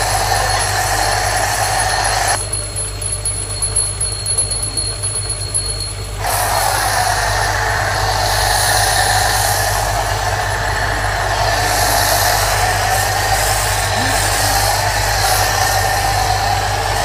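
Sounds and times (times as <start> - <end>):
pressure washer spray hissing: 0.0 - 2.4, 6.2 - 17.0
electric motor humming: 0.0 - 17.0.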